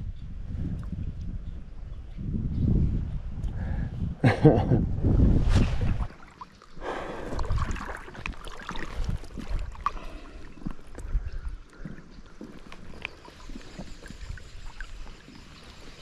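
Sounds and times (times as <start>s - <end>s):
sleeve rustling at microphone: 5.1s - 6.3s
shallow river water sloshing: 5.5s - 16.0s
small water splashes: 5.7s - 16.0s.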